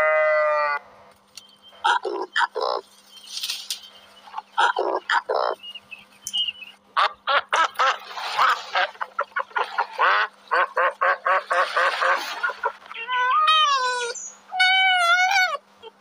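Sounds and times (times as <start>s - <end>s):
ducks quacking: 1.8s - 2.8s, 4.2s - 5.6s, 7.0s - 13.0s.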